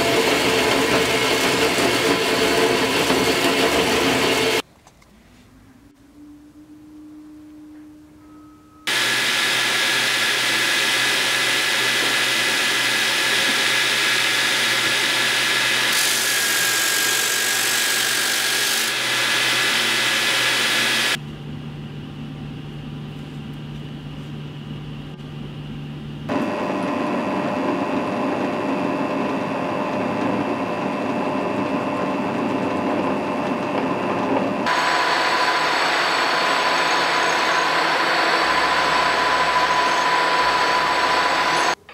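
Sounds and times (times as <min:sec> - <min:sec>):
machine cutting steel: 0:00.0 - 0:04.6, 0:08.9 - 0:21.2, 0:34.6 - 0:41.8
drill press drilling steel: 0:08.9 - 0:21.2, 0:34.7 - 0:41.8.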